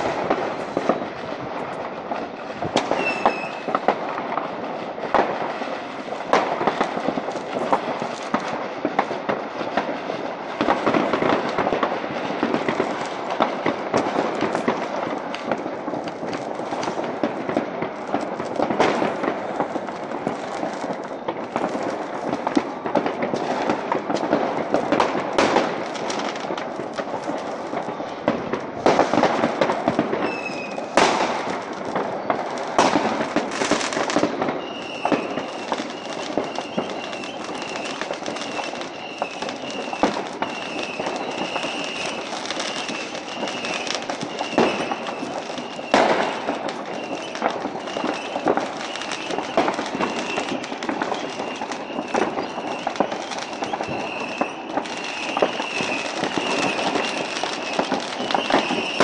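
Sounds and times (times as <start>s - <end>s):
firework whistle: 0.0s - 59.0s
fireworks crackling and banging: 0.0s - 59.0s.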